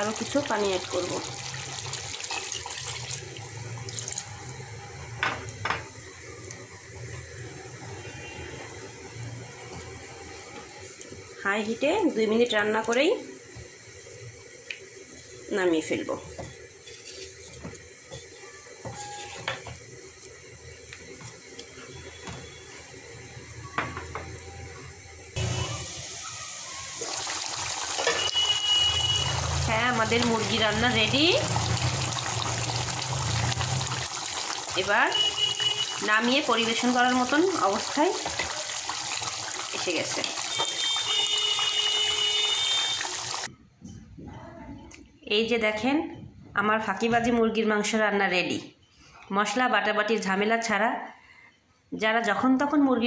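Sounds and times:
water pouring into a metal pot: 0.0 - 5.2, 25.4 - 43.5
curry boiling hiss: 0.0 - 43.5
spatula scraping metal pot: 16.8 - 17.6.

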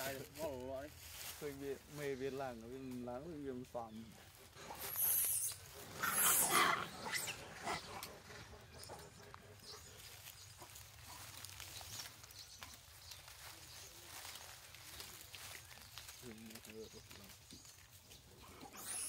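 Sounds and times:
harsh animal calls: 3.8 - 11.4, 18.3 - 19.0.

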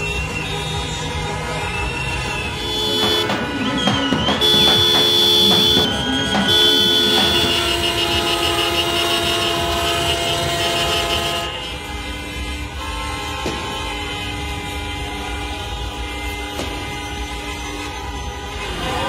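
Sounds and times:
people shouting and cheering: 0.0 - 8.3, 18.6 - 19.0
car horns blasting: 0.0 - 19.0.

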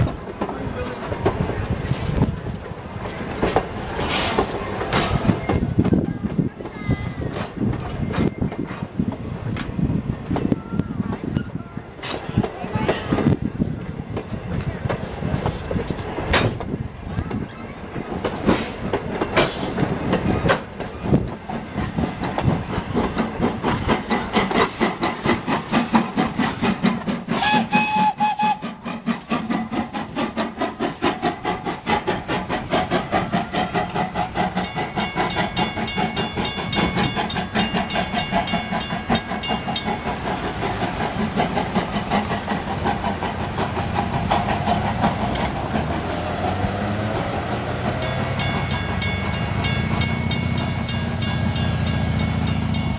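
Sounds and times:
train wheels clickety-clack: 0.0 - 52.9
steam locomotive whistle: 27.4 - 28.8.

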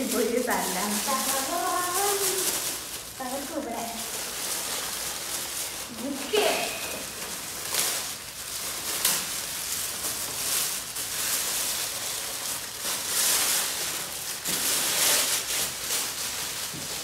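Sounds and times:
plastic wrapping crinkling: 0.0 - 17.0.

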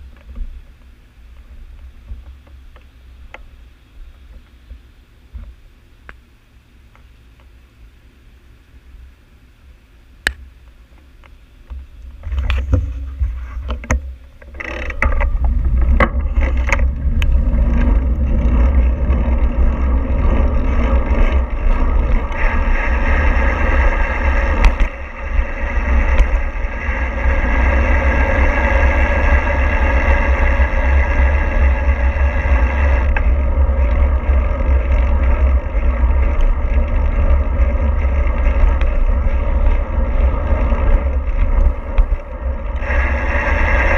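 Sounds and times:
vehicle low rumble: 0.0 - 43.9
rushing noise: 14.6 - 43.9.

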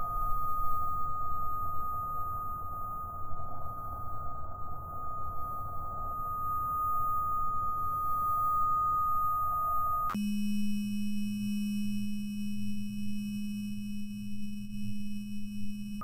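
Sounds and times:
high electronic tone: 0.0 - 10.2
low electronic hum: 0.0 - 16.0.

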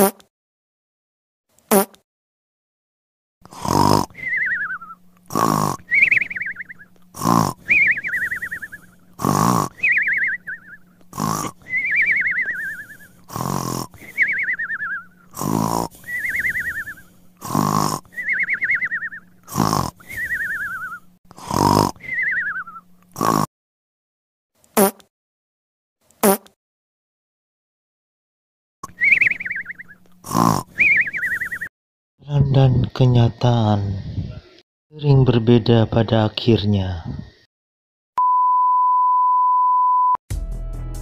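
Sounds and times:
cartoon snoring with whistle: 3.5 - 23.5, 28.8 - 31.7.

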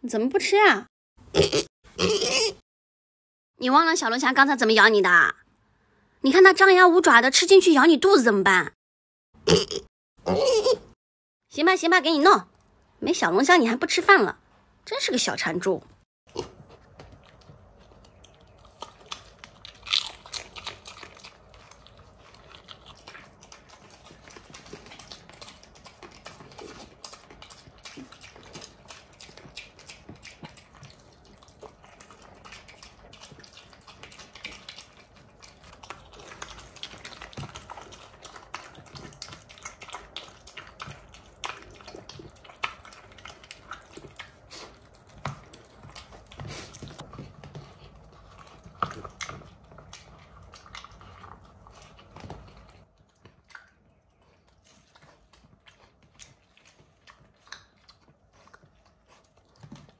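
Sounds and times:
pig chewing and smacking: 16.3 - 59.9.

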